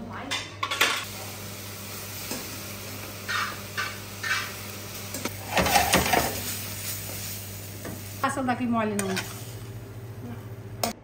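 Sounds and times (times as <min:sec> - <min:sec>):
meat sauce sizzling in a pan: 0:01.1 - 0:08.5
scraping in a pan: 0:05.4 - 0:06.6.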